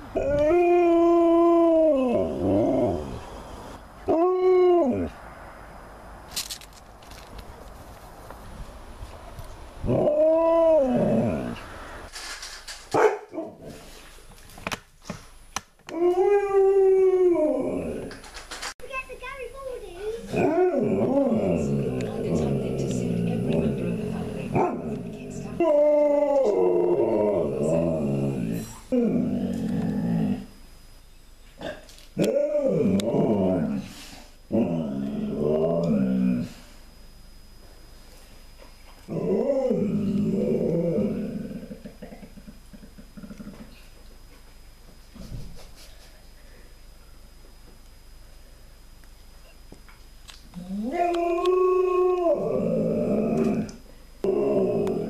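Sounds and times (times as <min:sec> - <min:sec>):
dog howling call: 0:00.2 - 0:03.2, 0:24.6 - 0:30.4, 0:50.6 - 0:55.0.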